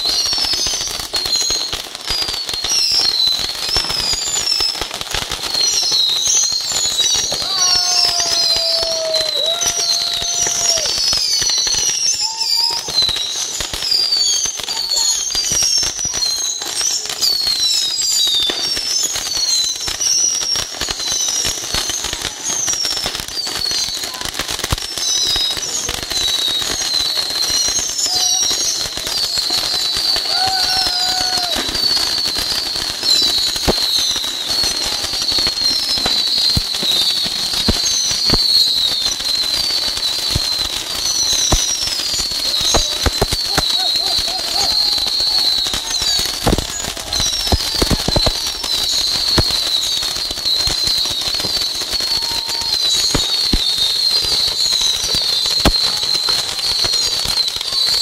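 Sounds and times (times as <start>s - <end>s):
short high rocket whistles: 0.0s - 24.2s, 24.9s - 58.0s
small rockets crackling and popping: 0.0s - 58.0s.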